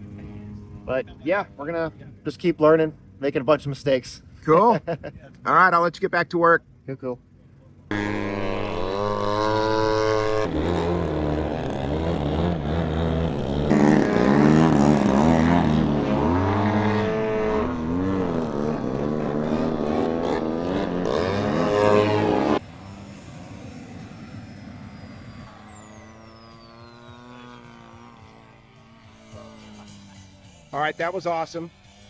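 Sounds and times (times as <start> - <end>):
model airplane engine: 7.9 - 16.4, 22.3 - 32.0
faint high whine: 22.5 - 32.0.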